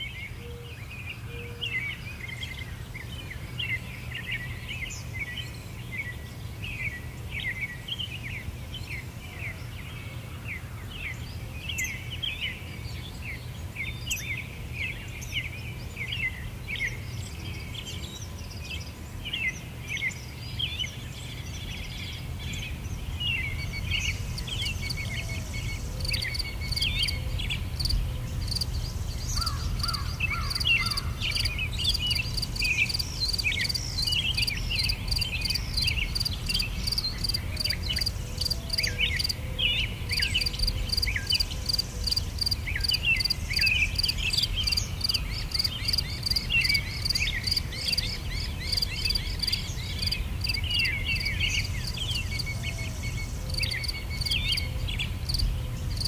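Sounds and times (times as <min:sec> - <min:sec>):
small birds chirping: 0:10.5 - 0:56.0
insects chirping: 0:23.4 - 0:39.4, 0:40.1 - 0:54.7, 0:55.3 - 0:56.0.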